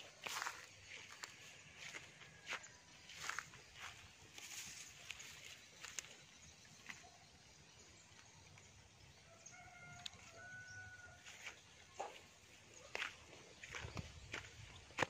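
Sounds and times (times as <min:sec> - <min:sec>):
footsteps on dry grass and sticks: 0:00.0 - 0:07.6, 0:09.8 - 0:15.0
rooster crowing faintly: 0:09.3 - 0:12.2.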